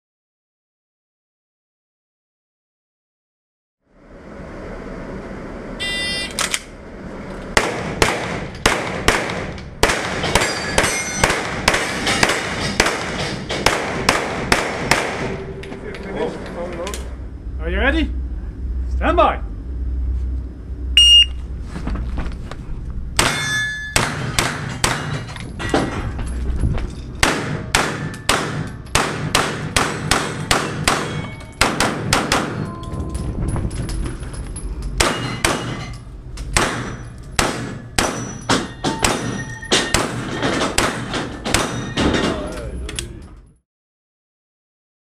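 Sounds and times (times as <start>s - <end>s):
shot timer beep: 5.8s - 6.4s, 21.0s - 21.4s.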